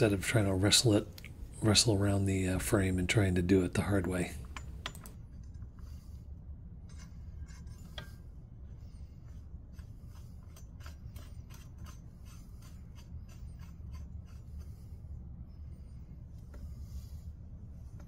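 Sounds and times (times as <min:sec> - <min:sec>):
steady low hum: 0:00.0 - 0:18.0
metallic clicks and scrapes: 0:06.8 - 0:08.4, 0:09.0 - 0:15.0.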